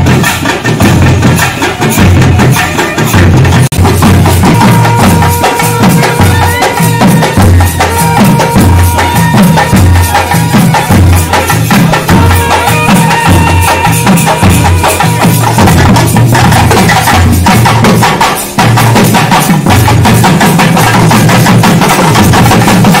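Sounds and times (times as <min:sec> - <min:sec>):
drum band playing fast rhythm: 0:00.0 - 0:23.0
held high note: 0:04.2 - 0:15.7.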